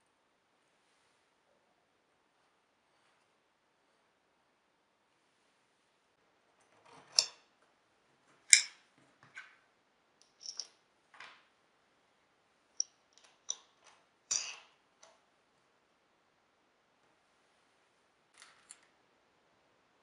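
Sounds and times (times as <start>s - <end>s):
metal bolts and washers clinking: 6.8s - 7.5s, 8.5s - 8.8s, 10.2s - 10.8s, 12.8s - 14.8s.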